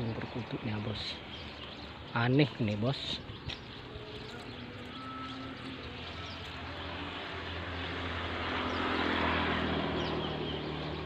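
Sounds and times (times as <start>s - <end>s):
engine drone: 3.8s - 11.0s.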